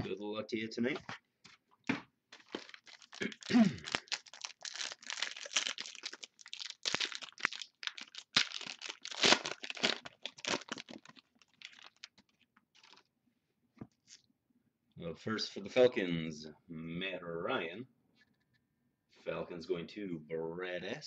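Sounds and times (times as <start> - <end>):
wrapper tearing and crinkling: 2.4 - 13.1.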